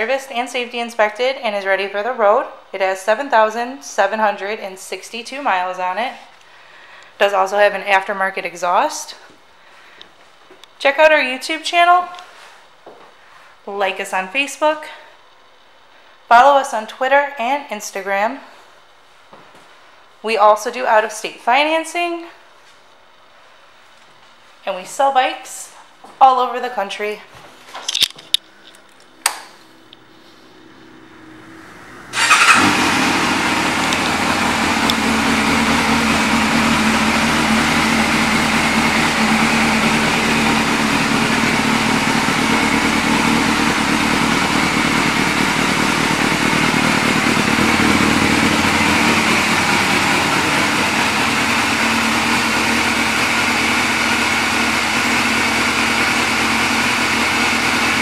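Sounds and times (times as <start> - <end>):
motorcycle engine starting and idling: 29.8 - 58.0.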